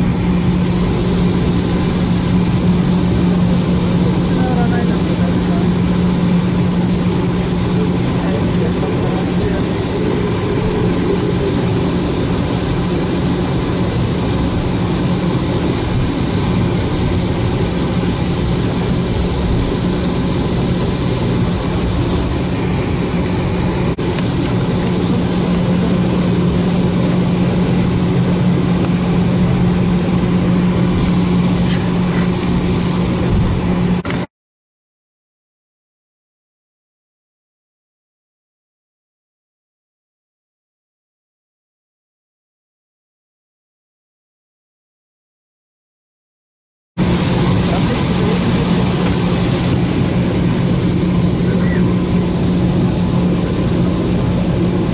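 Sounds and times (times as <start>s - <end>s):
aircraft cabin jet engine drone: 0.0s - 34.3s, 47.0s - 54.9s.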